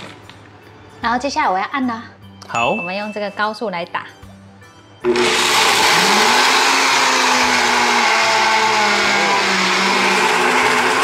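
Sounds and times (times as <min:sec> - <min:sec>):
blender grinding nuts: 0:05.0 - 0:11.0.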